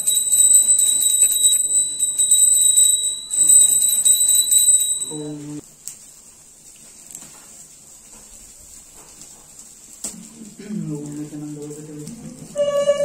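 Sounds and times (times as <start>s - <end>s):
small hand bell ringing: 0.0s - 5.5s.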